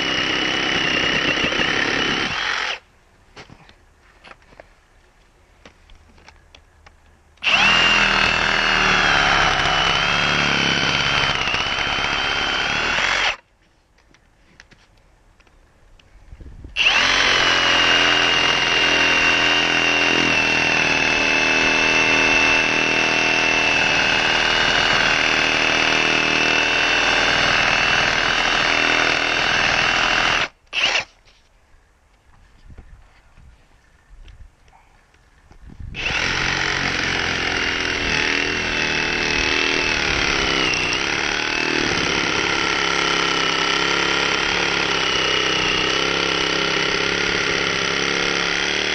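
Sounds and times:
reciprocating saw cutting wood: 0:00.0 - 0:02.8, 0:07.4 - 0:13.4, 0:16.8 - 0:31.2, 0:36.0 - 0:48.9.

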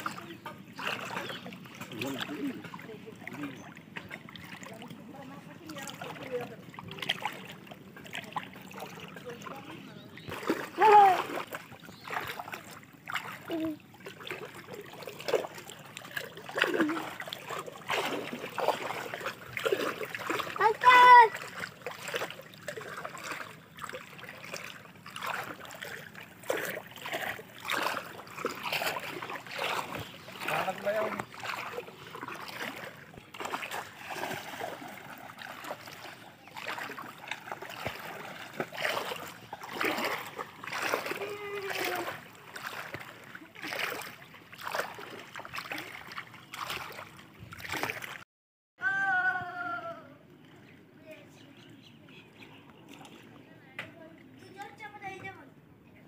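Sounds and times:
hand splashing in shallow water: 0:10.2 - 0:48.2.

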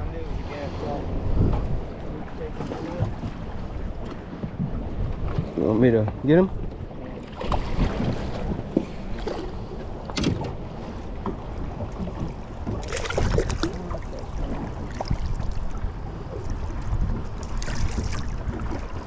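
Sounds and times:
water lapping at hull: 0:00.0 - 0:19.0
wind on microphone: 0:00.0 - 0:19.0
fish splashing: 0:12.8 - 0:14.0.

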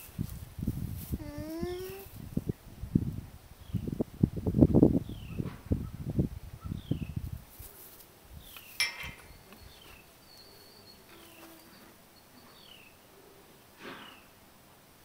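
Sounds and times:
wind buffeting microphone: 0:00.0 - 0:07.6
llama humming: 0:01.1 - 0:02.1, 0:09.5 - 0:12.0.

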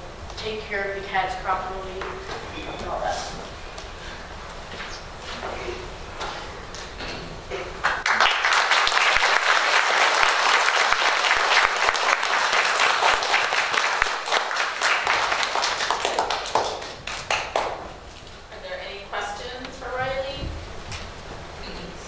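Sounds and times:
audience applauding: 0:07.8 - 0:18.0.

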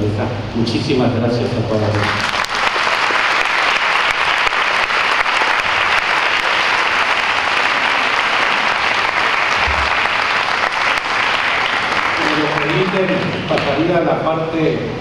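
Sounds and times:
audience applauding: 0:01.9 - 0:13.9.

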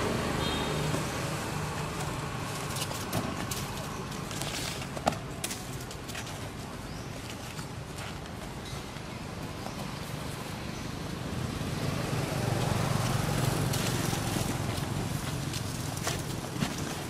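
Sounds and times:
light taps and rustles on tarp: 0:00.9 - 0:10.3, 0:12.5 - 0:17.0
vehicle passing with low rumble: 0:10.4 - 0:16.0.

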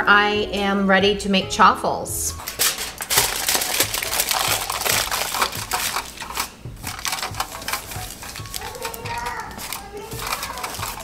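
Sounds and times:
utensils scraping and clicking: 0:02.4 - 0:11.0.

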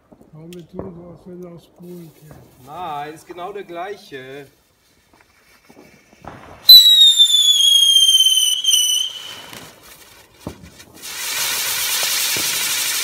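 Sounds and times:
fountain firework hissing sparks: 0:05.3 - 0:13.0
firework whistle: 0:06.2 - 0:09.9.

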